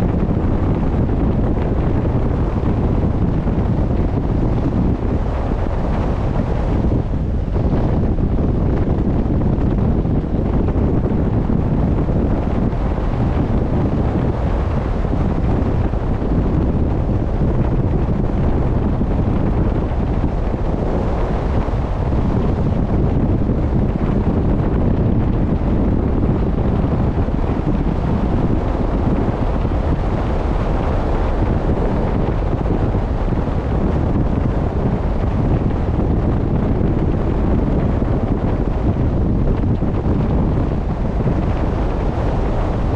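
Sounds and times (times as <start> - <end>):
rush of sea water: 0.0 - 42.9
wind buffeting microphone: 0.0 - 42.9.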